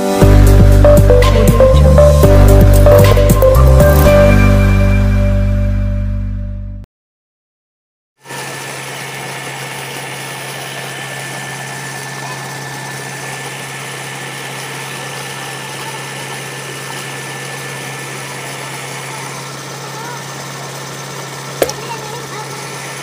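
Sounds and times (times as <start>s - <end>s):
tractor engine running: 0.0s - 4.8s, 8.3s - 23.0s
pump low hum: 8.3s - 23.0s
water gushing and splashing: 14.5s - 23.0s.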